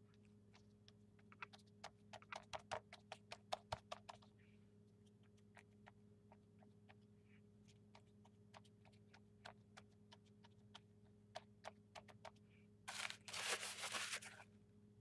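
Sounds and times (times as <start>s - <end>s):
faint clicks and crackles: 0.0s - 14.4s
paper rustling rub: 12.9s - 14.5s.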